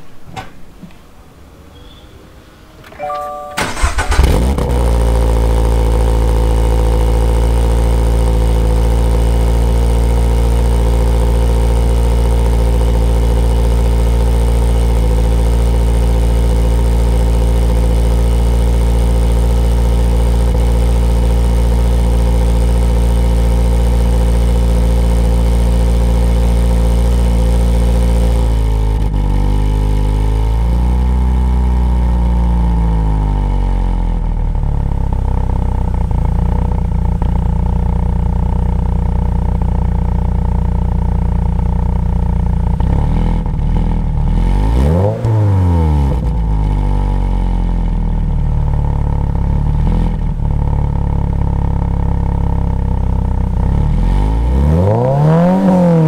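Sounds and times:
car engine starting: 0.0 - 56.0
car engine fast idle: 3.6 - 28.7.

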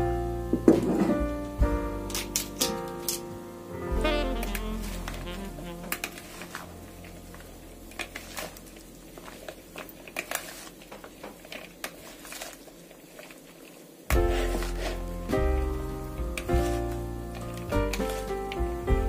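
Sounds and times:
vegetables rustling: 4.0 - 18.7.

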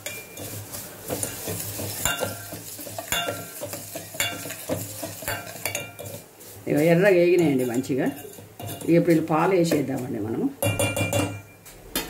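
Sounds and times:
light sizzle: 0.0 - 10.8
ladle knocking against pot: 10.6 - 11.5.

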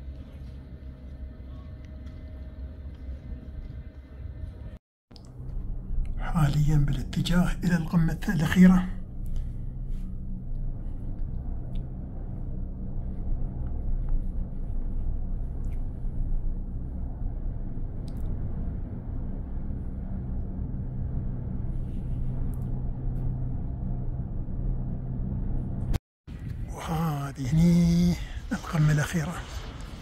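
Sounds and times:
cable car cabin rumble and hum: 0.0 - 30.0.

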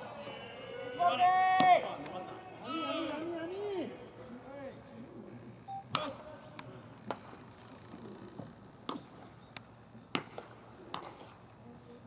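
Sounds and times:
faint voices calling: 0.0 - 10.1
bat cracking against baseball: 10.1 - 11.4.

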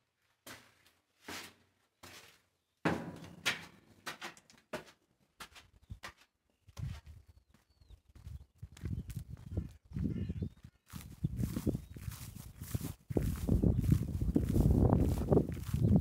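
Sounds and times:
footsteps on gritty concrete: 0.4 - 10.1
wind rumble on microphone: 6.7 - 7.4, 8.0 - 16.0.

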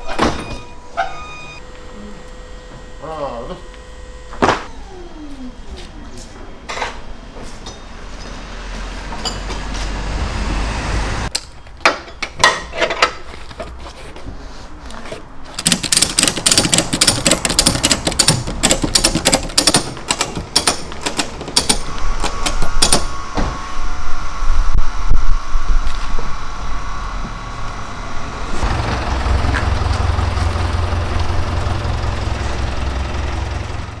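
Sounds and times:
truck engine running: 25.8 - 34.0.

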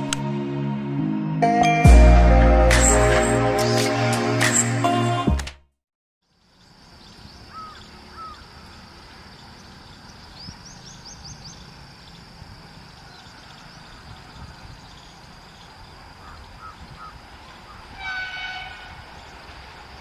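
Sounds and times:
birds calling: 6.4 - 19.5.

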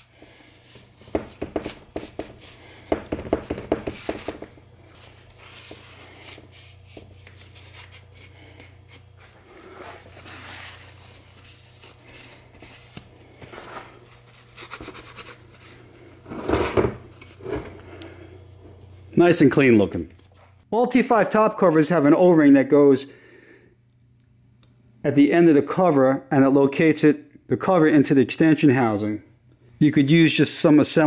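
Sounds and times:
paper towel wiping metal: 0.0 - 15.9.

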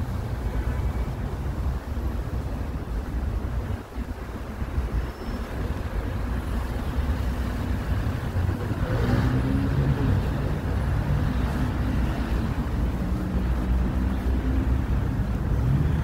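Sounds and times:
low traffic rumble: 0.0 - 16.0
car engine passing: 7.3 - 16.0.

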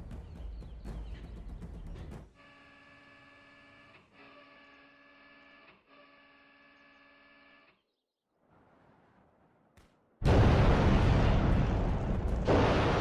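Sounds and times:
faint multi-tone hum: 2.4 - 7.9.

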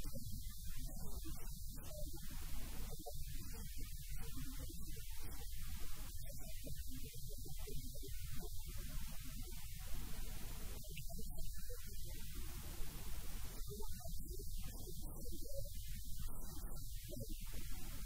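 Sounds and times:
electrical mains hum: 0.0 - 18.0
faint line hiss: 8.2 - 18.0.

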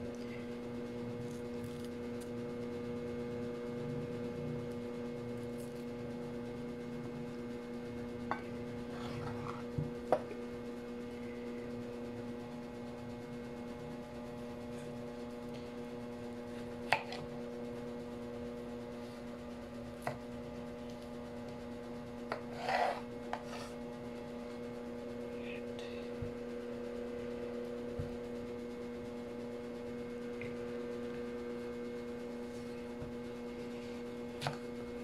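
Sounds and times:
steady hum: 0.0 - 35.0
knife scraping cut: 22.3 - 23.8.

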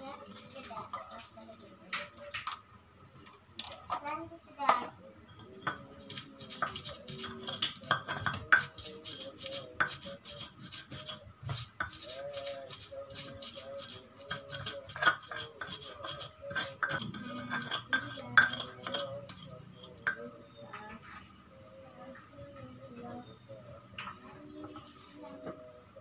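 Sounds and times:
stone pestle grinding in mortar: 5.7 - 20.2.

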